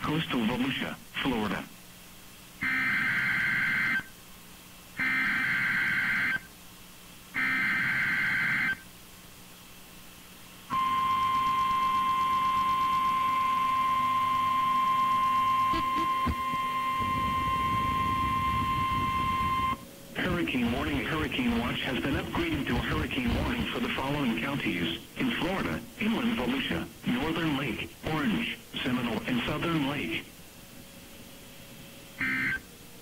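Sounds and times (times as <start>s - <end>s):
buzzy digital header tones: 2.6s - 4.1s, 5.0s - 6.5s, 7.3s - 8.8s, 10.7s - 30.2s, 32.2s - 32.7s
steady warning alarm tone: 2.6s - 4.2s, 5.0s - 6.5s, 7.4s - 8.9s, 10.7s - 24.5s, 32.2s - 32.7s.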